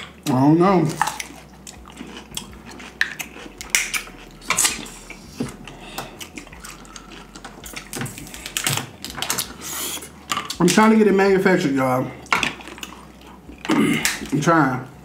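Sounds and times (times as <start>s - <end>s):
chewing: 0.0s - 10.8s, 12.0s - 14.4s
crab shells snapping: 2.4s - 4.9s, 13.9s - 14.4s.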